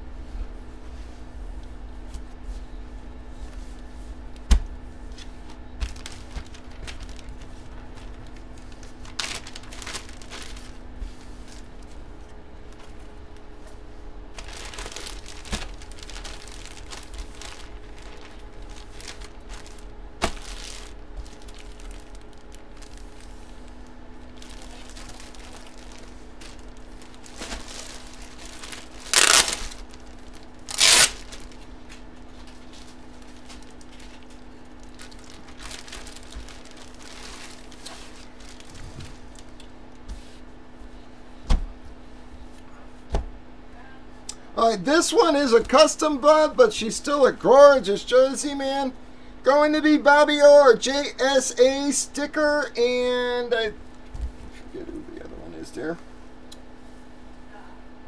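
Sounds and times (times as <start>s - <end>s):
faint steady hum: 0.0s - 58.0s
plastic bag crinkling: 5.7s - 13.5s, 14.2s - 39.6s.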